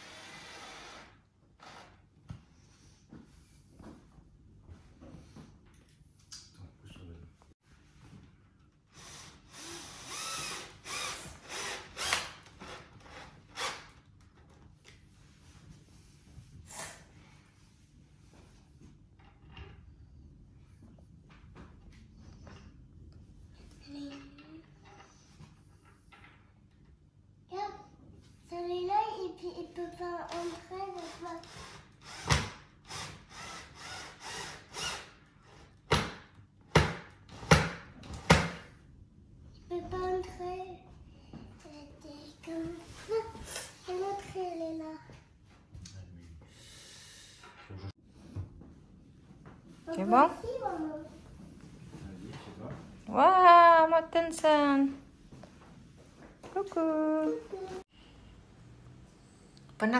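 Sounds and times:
cordless drill whining: 0.0 - 2.0, 8.9 - 13.8.

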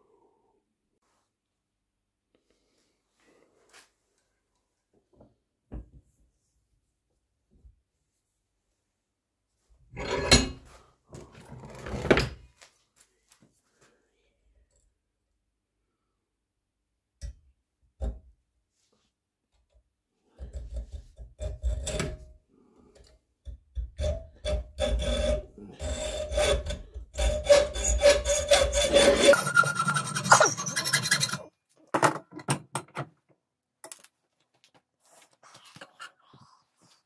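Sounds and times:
hand tool filing strokes: 24.4 - 31.5.

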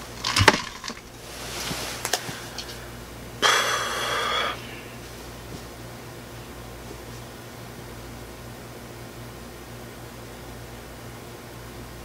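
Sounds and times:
bedding rustling: 0.0 - 2.9.

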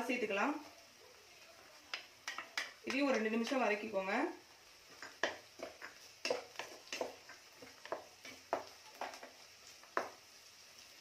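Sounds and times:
faint oil sizzling: 0.0 - 11.0
wooden spatula scraping a pan: 4.9 - 10.2.

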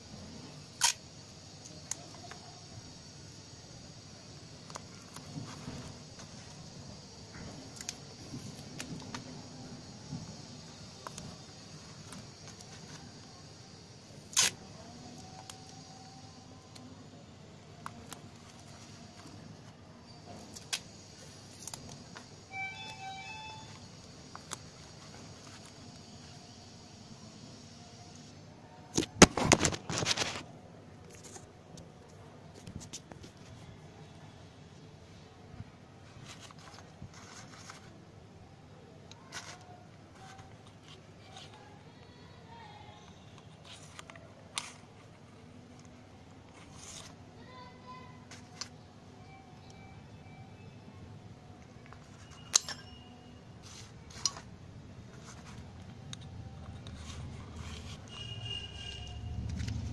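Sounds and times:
cardboard rustling: 36.1 - 38.0.

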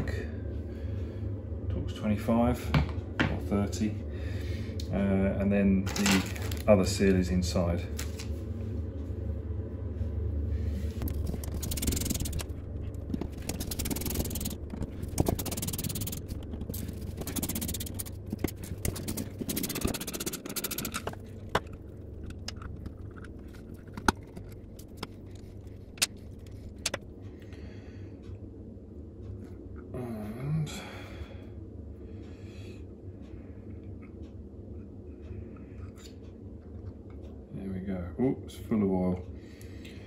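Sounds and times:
metal scraping: 11.0 - 27.0
hand ratchet clicking: 13.2 - 21.2.

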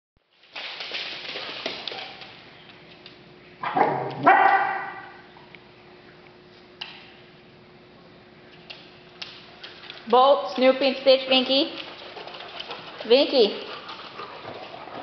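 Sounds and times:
dogs scuffling on wooden floor: 0.3 - 3.3, 8.6 - 15.0
dog play barks: 3.6 - 5.2.

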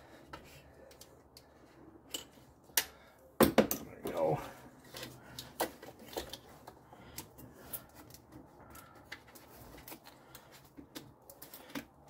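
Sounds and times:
light clicks and taps of tools: 0.2 - 3.0.

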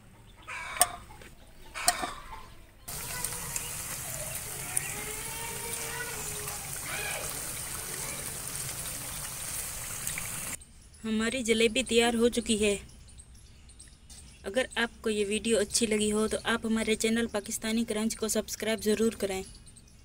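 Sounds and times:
batter sizzling in hot oil: 2.9 - 10.6.

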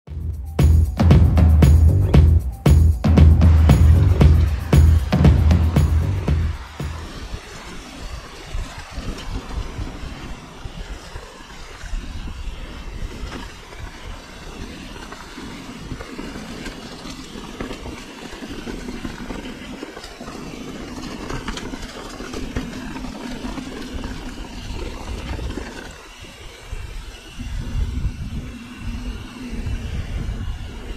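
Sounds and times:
steady low hum: 0.1 - 7.4
low rumble: 0.1 - 7.7
bike tyres on wet dirt and stones: 3.8 - 30.9
bike rattling over bumps: 13.1 - 26.0.

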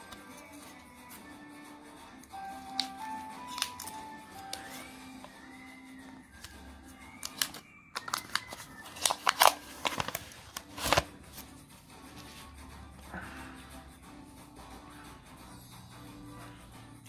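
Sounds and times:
soft background music: 0.0 - 17.0
paper wrapper tearing and crackling: 2.8 - 4.9, 7.1 - 11.2.

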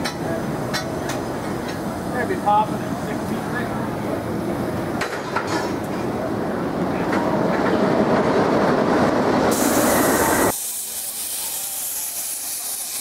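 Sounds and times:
steam hissing from cylinder cocks: 0.0 - 4.2, 9.5 - 13.0.

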